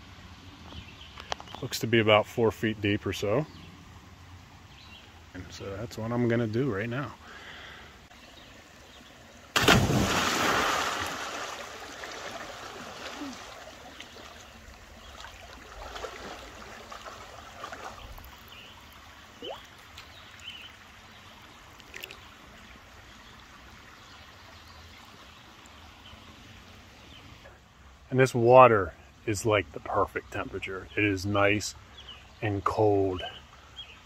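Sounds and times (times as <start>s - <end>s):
small splashes and trickles: 7.2s - 28.0s
big splash of person jumping: 9.5s - 13.6s
water lapping: 9.6s - 20.6s.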